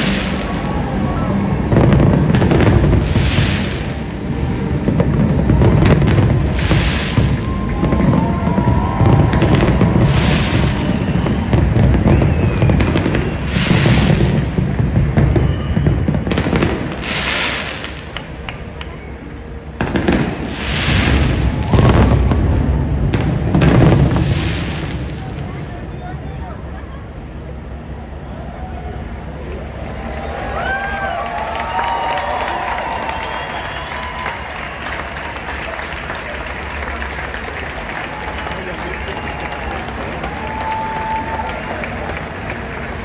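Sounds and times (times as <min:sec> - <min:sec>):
fireworks bursting: 0:00.0 - 0:25.6
crackling firework shower: 0:00.0 - 0:26.2, 0:30.6 - 0:43.0
low rumble: 0:00.0 - 0:30.5.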